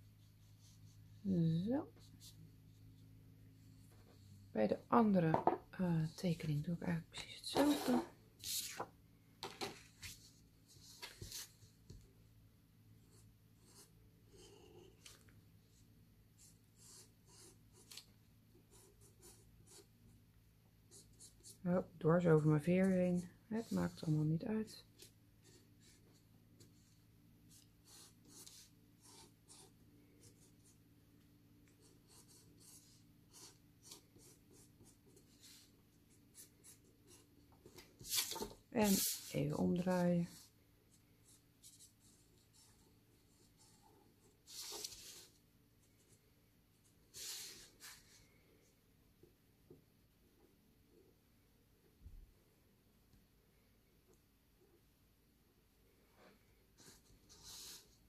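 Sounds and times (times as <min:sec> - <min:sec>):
marker scratching on paper: 0:27.6 - 0:30.7, 0:31.8 - 0:35.7.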